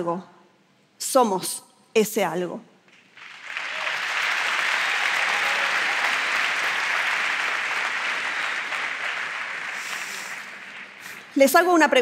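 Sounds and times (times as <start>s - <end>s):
large audience applauding: 2.9s - 11.7s.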